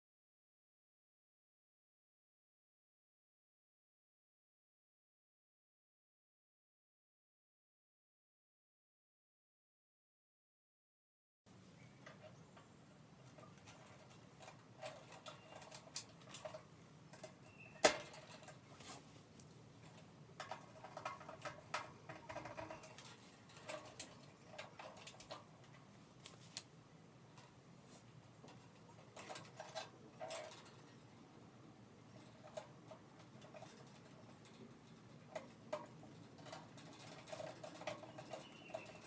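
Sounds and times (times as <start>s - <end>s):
wires rustling: 11.5s - 39.0s
small clicks on metal housing: 19.8s - 26.7s.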